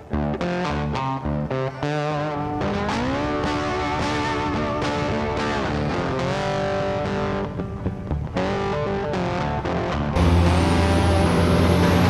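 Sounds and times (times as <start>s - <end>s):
electric guitar music: 0.0s - 12.0s
thin high whine: 10.2s - 12.0s
truck diesel engine running: 10.2s - 12.0s.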